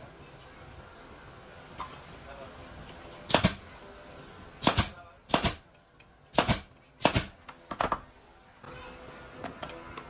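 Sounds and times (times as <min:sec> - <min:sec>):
nail gun firing into wood: 0:03.3 - 0:03.6, 0:04.6 - 0:05.6, 0:06.3 - 0:07.4.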